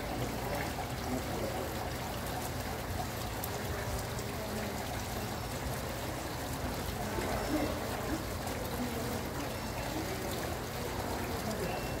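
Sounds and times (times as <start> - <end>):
water trickling and splashing: 0.0 - 12.0.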